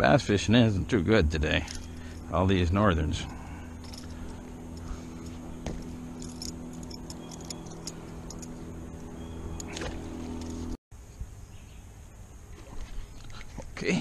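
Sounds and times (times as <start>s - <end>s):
metallic clicks and jingles: 1.6s - 2.4s, 3.0s - 8.6s
electric motor humming: 1.6s - 10.8s.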